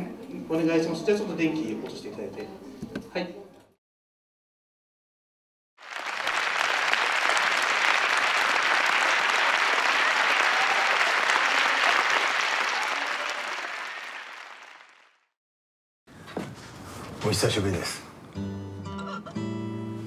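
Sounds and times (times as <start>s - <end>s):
audience applauding: 5.8s - 15.4s.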